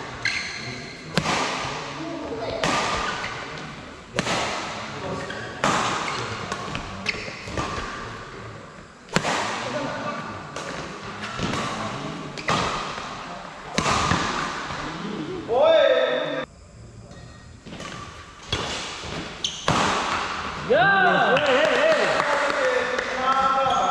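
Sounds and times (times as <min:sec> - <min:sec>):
rackets hitting shuttlecock: 0:00.2 - 0:08.2, 0:09.1 - 0:09.9, 0:10.5 - 0:14.9, 0:17.6 - 0:20.6
background voices: 0:03.4 - 0:17.8.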